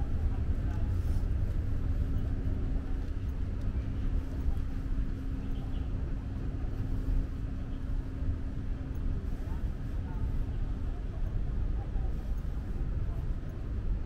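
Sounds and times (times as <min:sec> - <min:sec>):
constant low hum: 0:00.0 - 0:14.0
low rumble of urban background: 0:00.0 - 0:14.0.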